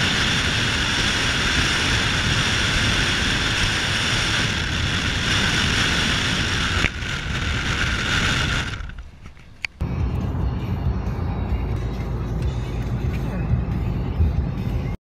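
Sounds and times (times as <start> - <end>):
wind rushing over microphone: 0.0 - 9.8
deep rumble: 0.0 - 15.0
vehicle wind and tyre noise: 0.0 - 15.0.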